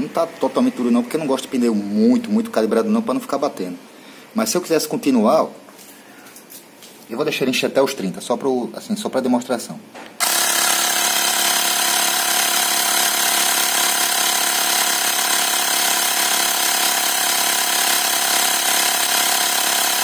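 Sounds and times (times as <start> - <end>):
air compressor humming: 10.2 - 20.0.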